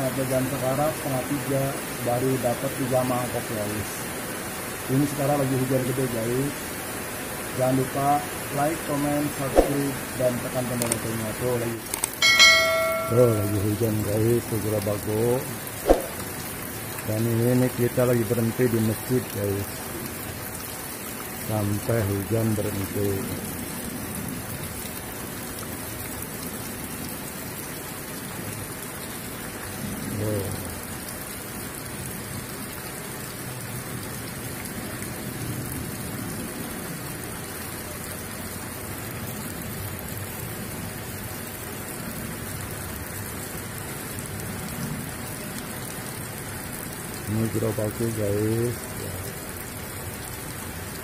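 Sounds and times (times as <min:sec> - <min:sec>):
heavy rain on paving: 0:00.0 - 0:51.0
person's voice: 0:07.6 - 0:16.2, 0:17.1 - 0:19.7, 0:21.5 - 0:23.4, 0:47.3 - 0:49.2.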